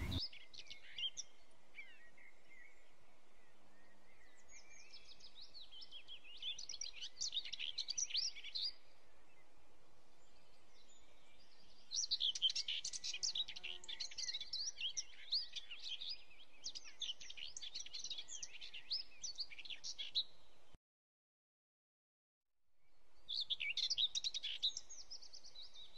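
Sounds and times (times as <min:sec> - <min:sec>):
small birds twittering: 0:00.0 - 0:02.7.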